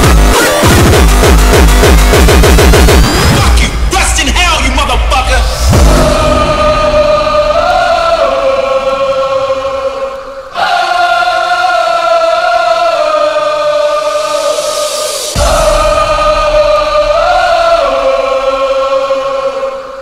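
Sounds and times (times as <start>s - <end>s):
pounding kick drum: 0.0s - 3.2s, 5.5s - 8.6s, 15.4s - 18.8s
choir-like synth chords: 4.8s - 20.0s.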